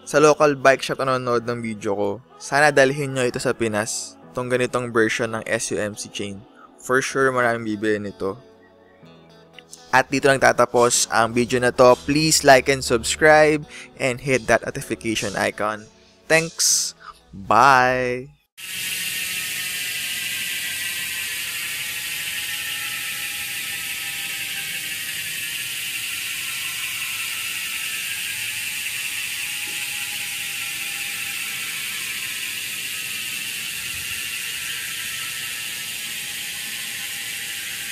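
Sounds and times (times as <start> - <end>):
bicycle freehub ratchet clicking: 9.8 - 15.4, 18.6 - 37.9.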